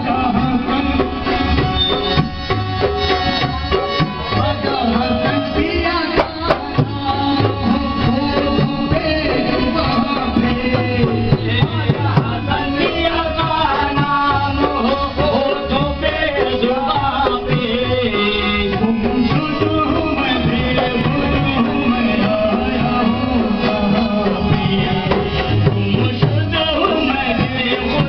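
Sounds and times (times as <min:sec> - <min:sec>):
hand drum rhythm: 0:00.0 - 0:28.0.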